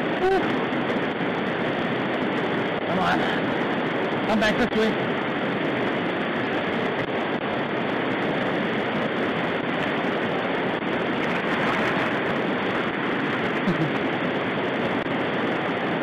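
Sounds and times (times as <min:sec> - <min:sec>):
river rapids rushing over rocks: 0:09.2 - 0:13.6.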